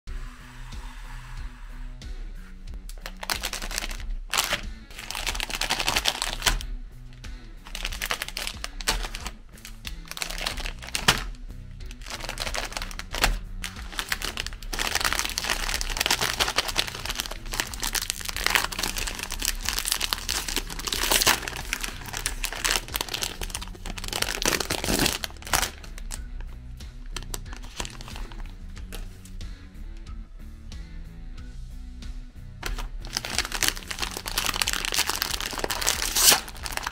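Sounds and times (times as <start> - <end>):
background music: 0.0 - 36.9
plastic wrappers crinkling: 3.0 - 6.6, 7.6 - 11.3, 11.9 - 26.2, 27.2 - 29.0, 32.6 - 36.9
wrapper peeled open: 3.0 - 6.6, 7.7 - 11.3, 11.9 - 26.2, 27.2 - 28.5, 32.6 - 36.9.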